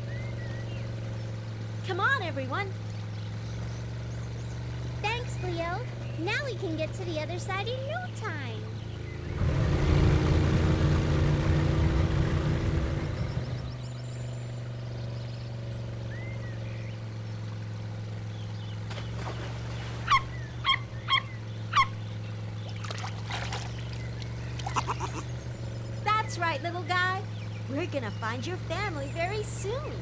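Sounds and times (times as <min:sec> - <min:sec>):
water splashing: 0:18.8 - 0:20.3, 0:22.5 - 0:25.2.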